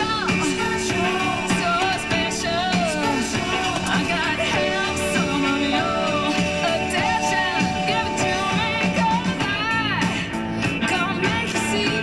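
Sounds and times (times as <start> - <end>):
pop song on a radio: 0.0 - 12.0.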